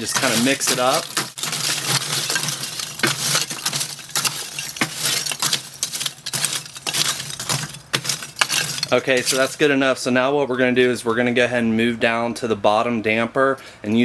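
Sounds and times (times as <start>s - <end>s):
charcoal clinking against metal: 0.0s - 9.8s.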